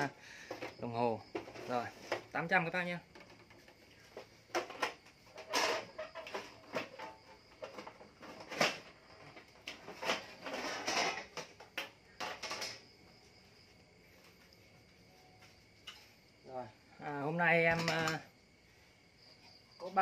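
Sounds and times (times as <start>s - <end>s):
hard objects knocking and clattering: 0.4s - 2.4s, 3.0s - 13.0s.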